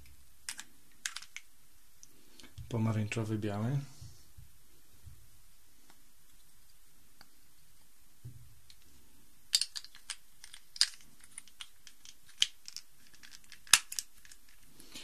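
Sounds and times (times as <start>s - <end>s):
plastic cube pieces clicking: 0.5s - 1.5s, 9.5s - 14.7s.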